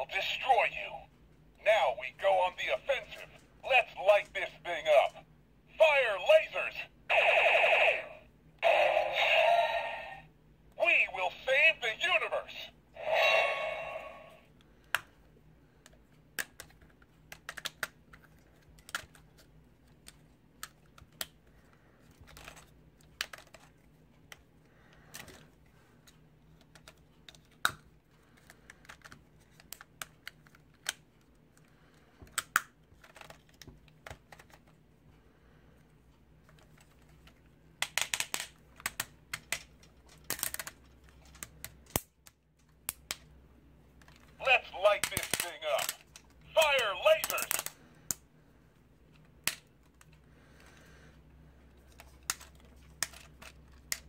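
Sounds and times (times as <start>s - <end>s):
plastic toy parts clicking: 15.8s - 19.4s, 22.2s - 23.7s, 26.5s - 27.8s, 28.4s - 31.0s, 32.3s - 34.7s, 36.5s - 43.3s, 45.0s - 46.3s, 47.2s - 48.2s, 51.9s - 54.0s.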